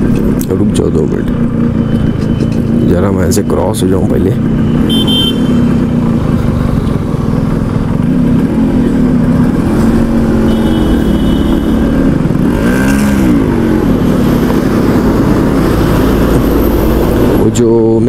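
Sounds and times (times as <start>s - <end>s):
motorcycle engine revving: 0.0s - 3.3s, 4.4s - 18.0s.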